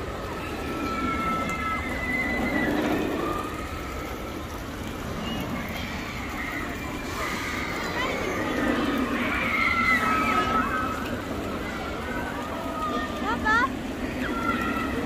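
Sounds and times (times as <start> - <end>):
crowd hubbub: 0.0 - 15.0.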